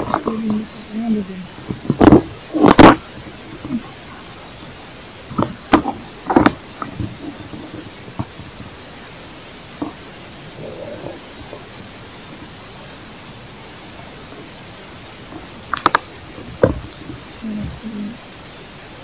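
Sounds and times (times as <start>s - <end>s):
loud knocks: 15.7s - 17.1s.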